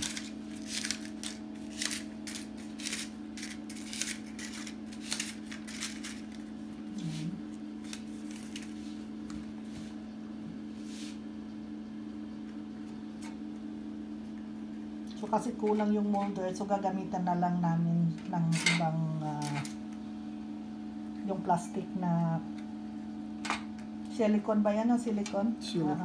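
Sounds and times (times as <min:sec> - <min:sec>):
paper liners crinkling: 0:00.0 - 0:06.7, 0:07.8 - 0:09.0
steady low hum: 0:00.0 - 0:26.0.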